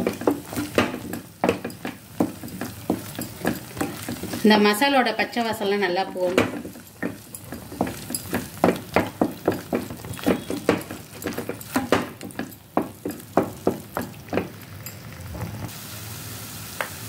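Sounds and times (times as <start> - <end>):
spatula knocking against pan: 0.0 - 4.6, 6.1 - 14.6.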